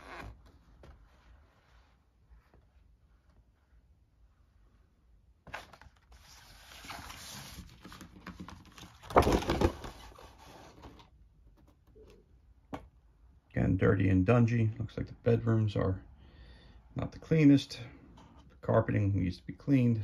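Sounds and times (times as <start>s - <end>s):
mat rustling and scraping: 0.0s - 3.8s.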